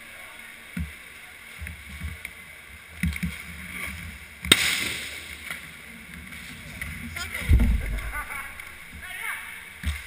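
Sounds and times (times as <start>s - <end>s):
sharp puck impact crack: 4.4s - 5.6s.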